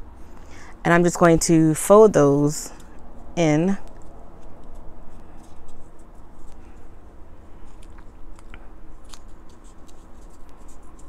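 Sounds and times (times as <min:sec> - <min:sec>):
cardstock crackling as folded: 0:02.8 - 0:06.9, 0:07.6 - 0:11.0.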